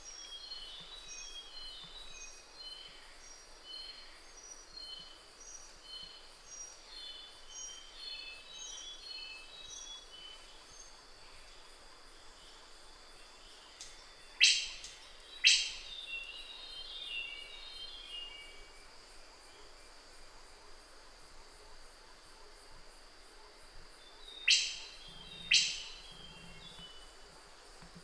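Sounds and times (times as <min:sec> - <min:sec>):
high insect drone: 0:00.0 - 0:28.0
bird calling sharp clicks: 0:13.8 - 0:15.8.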